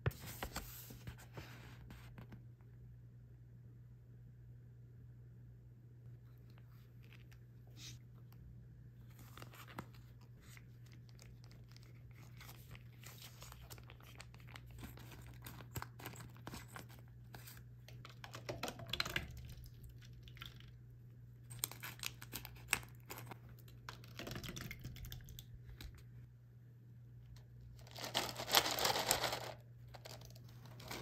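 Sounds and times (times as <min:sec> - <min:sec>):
plastic pouches crinkling: 0:27.8 - 0:31.0.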